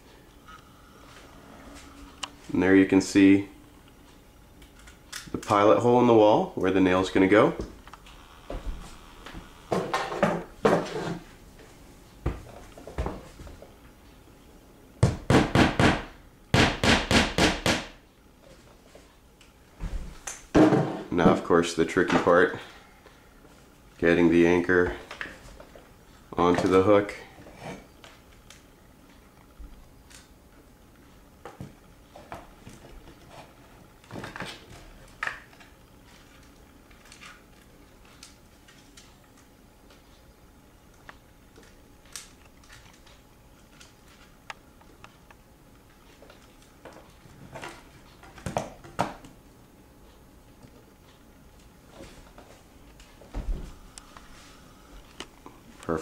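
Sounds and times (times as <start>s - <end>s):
hammer striking nail: 15.0s - 18.0s.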